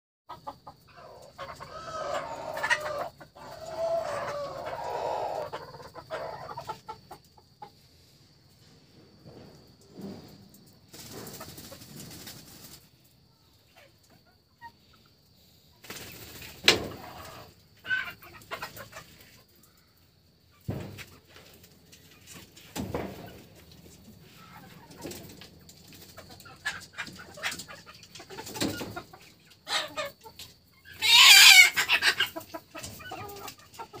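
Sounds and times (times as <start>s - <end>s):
chickens clucking: 0.3s - 34.0s
rustling: 8.0s - 13.0s.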